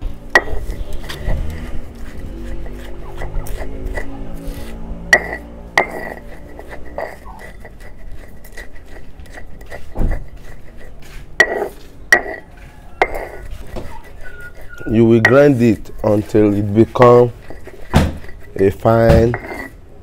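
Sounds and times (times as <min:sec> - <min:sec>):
stone grinding on stone slab: 0:00.0 - 0:20.0
stone knocks: 0:17.8 - 0:18.4.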